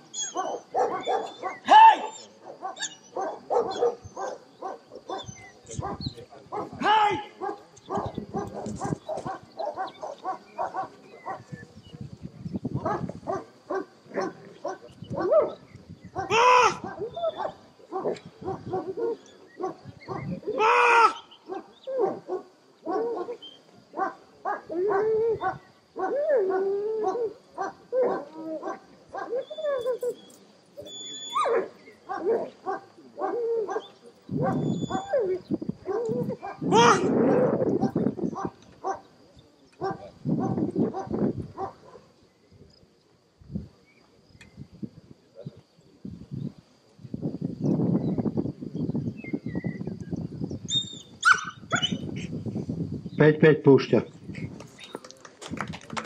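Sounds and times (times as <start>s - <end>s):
dogs barking: 0.2s - 11.6s, 12.8s - 30.1s, 31.2s - 39.1s, 39.8s - 42.1s, 51.2s - 52.0s.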